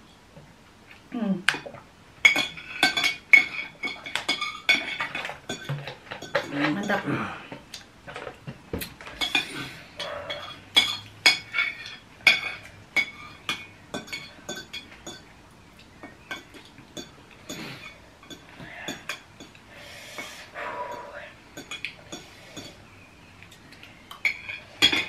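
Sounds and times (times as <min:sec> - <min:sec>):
cutlery clinking on a plate: 0:02.2 - 0:07.0, 0:09.0 - 0:15.3, 0:24.1 - 0:25.0.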